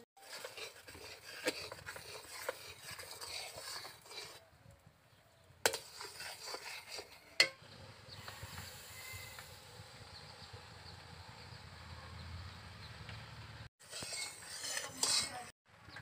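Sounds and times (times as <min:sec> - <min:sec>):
metal spatula scraping iron pot: 0:00.0 - 0:04.5, 0:05.6 - 0:07.6, 0:13.8 - 0:15.6.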